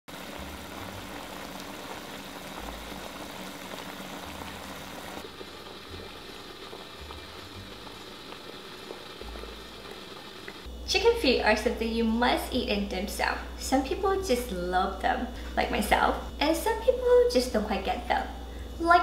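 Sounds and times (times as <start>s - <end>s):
sauce bubbles popping: 0.1s - 10.7s.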